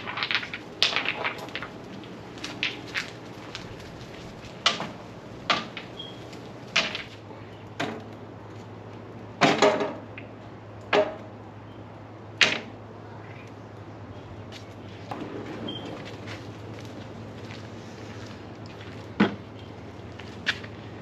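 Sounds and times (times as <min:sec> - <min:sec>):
stones clacking on metal grill: 0:00.0 - 0:07.2.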